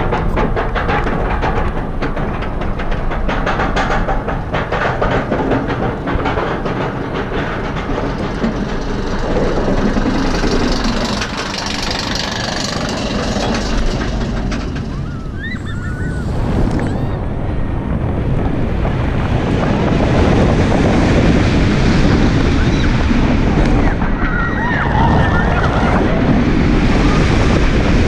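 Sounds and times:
roller coaster chain clattering: 0:00.0 - 0:17.2, 0:20.4 - 0:28.0
wind on microphone: 0:00.0 - 0:28.0
riders crying out: 0:14.8 - 0:17.2, 0:23.8 - 0:26.3.

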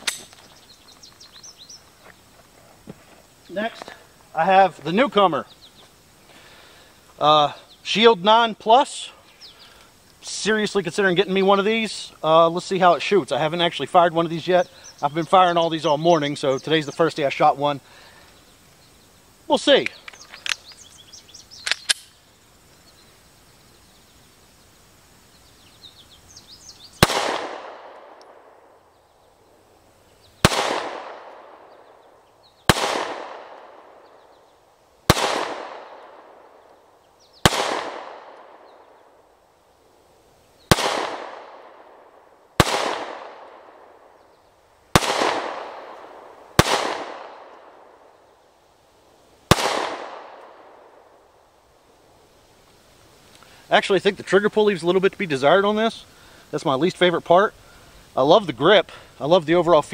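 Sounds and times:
faint handling clicks: 0:19.8 - 0:20.9
pistol shots echoing: 0:27.0 - 0:28.7, 0:30.4 - 0:32.0, 0:32.7 - 0:34.1, 0:35.1 - 0:36.6, 0:37.4 - 0:38.8, 0:40.7 - 0:44.2, 0:44.9 - 0:48.0, 0:49.5 - 0:51.1.

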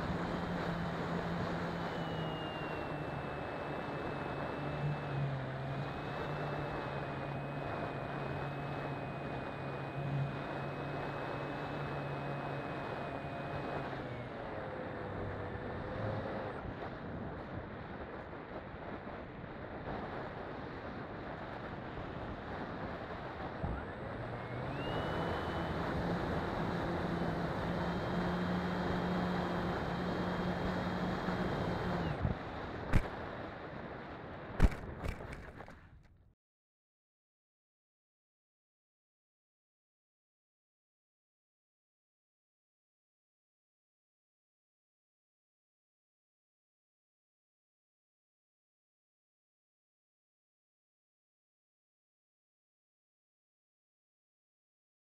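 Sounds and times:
electric motor and propeller whine: 0:00.0 - 0:35.8.

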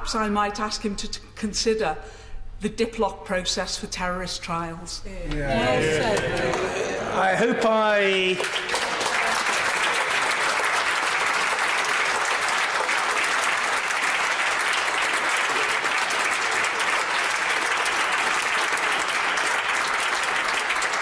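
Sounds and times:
crowd applause: 0:05.6 - 0:21.0.

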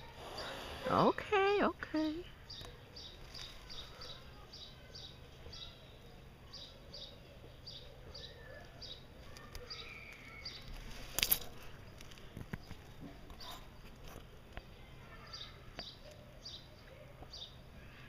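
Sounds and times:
faint high chirps: 0:02.0 - 0:10.8.

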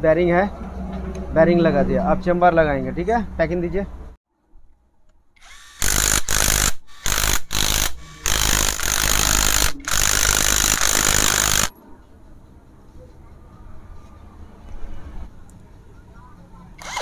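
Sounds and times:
cordless drill driving bolts: 0:05.4 - 0:11.7, 0:16.8 - 0:17.0.

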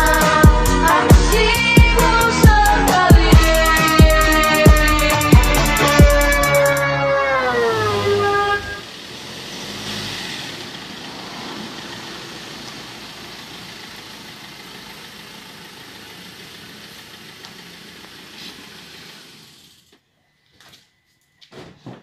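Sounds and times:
pickup truck rolling past: 0:07.0 - 0:19.8.

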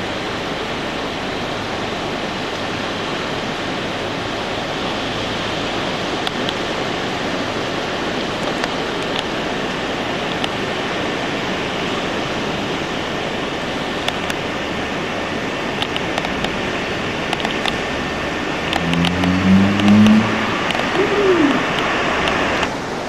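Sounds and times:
sea: 0:00.0 - 0:23.0
wind: 0:00.0 - 0:23.0
faint clicks: 0:10.2 - 0:10.6, 0:15.8 - 0:16.6.

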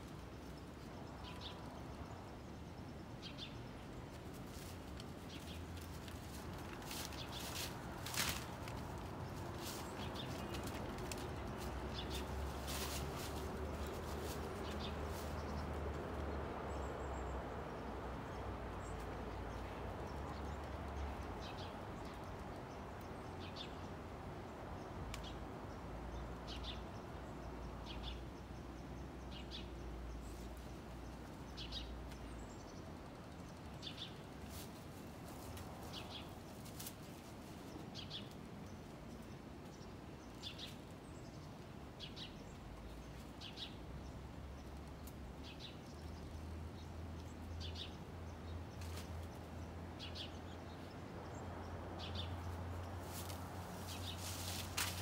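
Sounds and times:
dog rustling dry leaves: 0:04.1 - 0:15.7, 0:34.4 - 0:37.8, 0:52.8 - 0:55.0.

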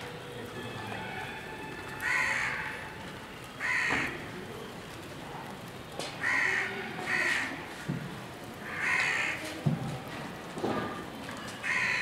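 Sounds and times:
crow cawing: 0:02.0 - 0:02.8, 0:03.6 - 0:04.2, 0:06.2 - 0:07.6, 0:08.6 - 0:09.4, 0:11.6 - 0:12.0.

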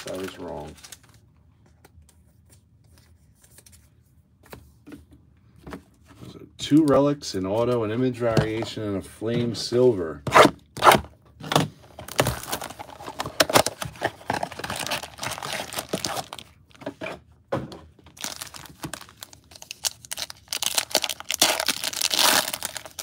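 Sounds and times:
foil wrapper torn open: 0:00.0 - 0:01.2, 0:12.1 - 0:16.6, 0:18.2 - 0:23.0
foil packs crinkling: 0:00.0 - 0:01.3, 0:12.0 - 0:16.8, 0:18.0 - 0:23.0.

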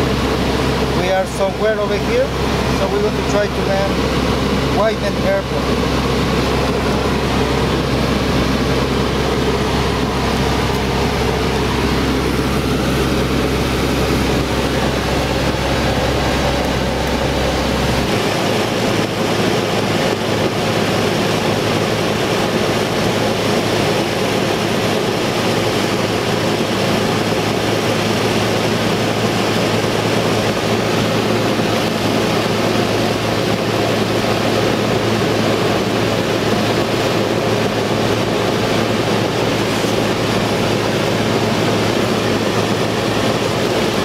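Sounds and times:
propeller plane engine drone: 0:00.0 - 0:44.0.

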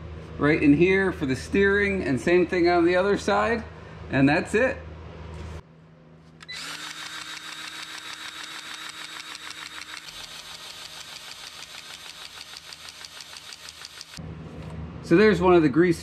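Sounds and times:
grease gun motor pumping: 0:06.4 - 0:14.2.

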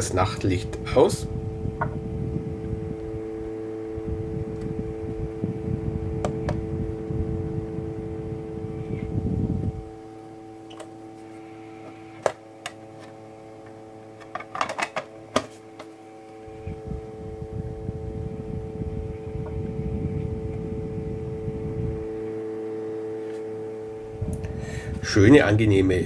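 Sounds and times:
fan whirring: 0:00.0 - 0:26.0
wind rumble on microphone: 0:00.7 - 0:10.0, 0:16.4 - 0:22.4, 0:24.1 - 0:26.0.

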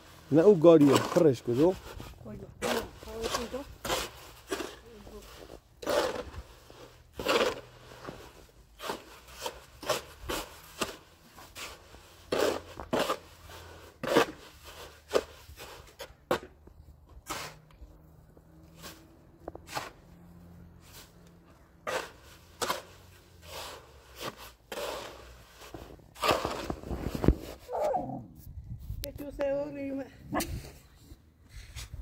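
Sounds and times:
short scraping strokes: 0:20.8 - 0:28.5.

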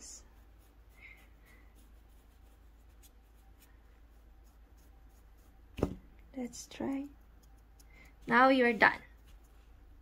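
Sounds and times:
soft brush sweeping: 0:00.0 - 0:05.6.

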